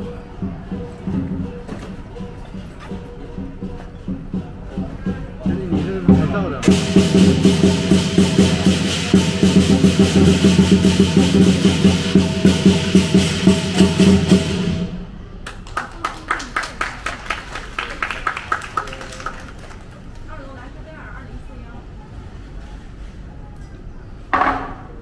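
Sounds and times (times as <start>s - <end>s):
cymbals clashing: 0.0s - 15.3s
big drum beaten fast: 3.6s - 15.3s
gong: 5.5s - 15.1s.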